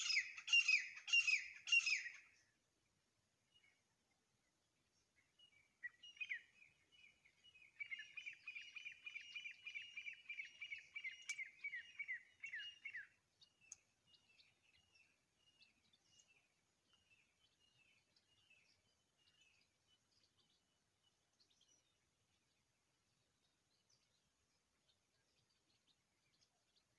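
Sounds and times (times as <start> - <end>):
francolin ringing calls: 0.0 - 2.2.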